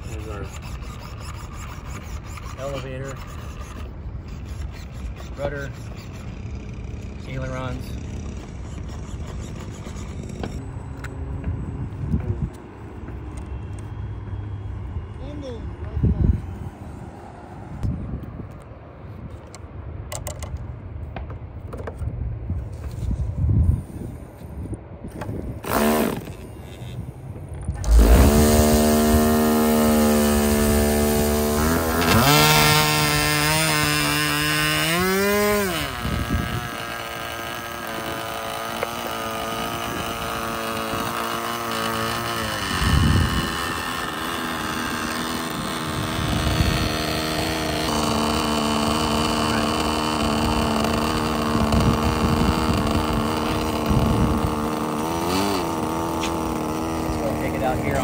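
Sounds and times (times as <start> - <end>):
model airplane engine buzzing: 25.6 - 27.2, 27.8 - 58.0
electric starter spinning: 27.7 - 58.0.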